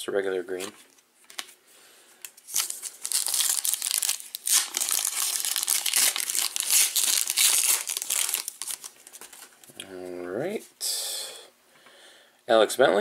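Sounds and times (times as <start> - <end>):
foil wrapper crinkling: 2.4 - 9.6.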